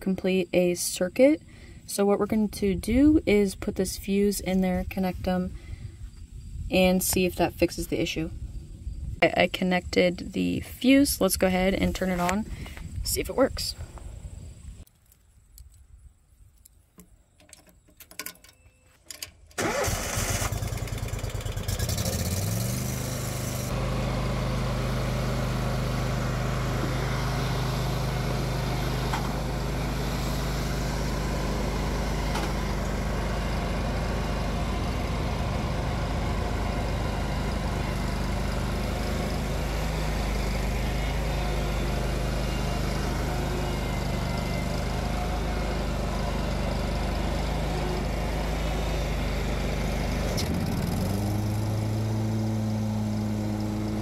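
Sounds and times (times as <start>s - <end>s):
mower engine starting and running: 19.1s - 54.0s.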